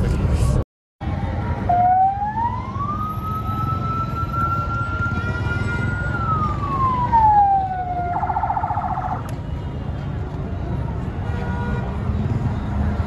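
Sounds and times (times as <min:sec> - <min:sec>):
street traffic rumble: 0:00.0 - 0:13.0
vehicle siren wailing: 0:01.4 - 0:09.3.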